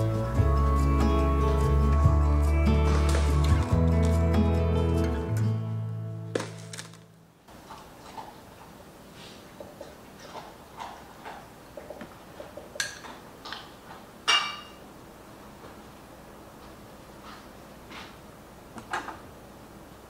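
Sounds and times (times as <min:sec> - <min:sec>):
glassware and dishes clinking: 0:14.3 - 0:14.8.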